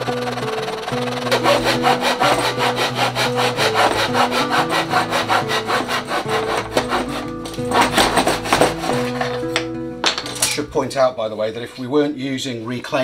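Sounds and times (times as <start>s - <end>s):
hand saw cutting wood: 0.0s - 9.4s.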